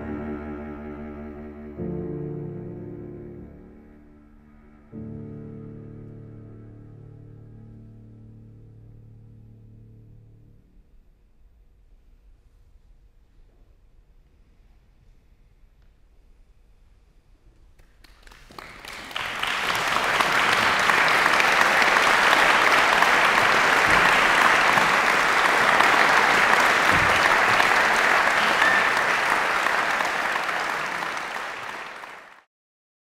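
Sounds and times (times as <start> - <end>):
audience applauding: 17.8 - 32.5.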